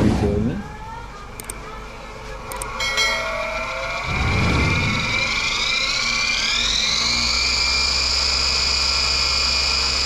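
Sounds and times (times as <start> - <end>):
router spindle whine rising: 3.4 - 10.0.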